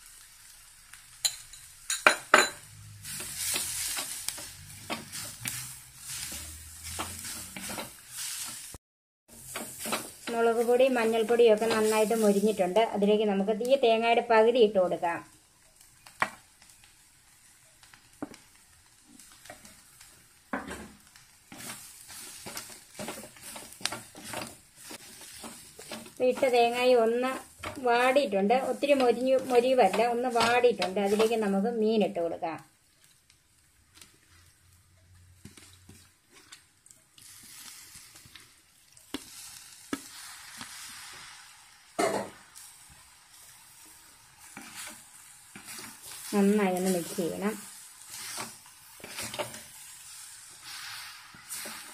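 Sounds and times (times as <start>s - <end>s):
fish sizzling in a pot: 0.0s - 51.9s
food frying faintly: 0.0s - 51.9s
wooden spatula scraping clay pot: 3.0s - 8.7s, 9.5s - 12.5s, 21.5s - 31.5s, 44.4s - 49.8s.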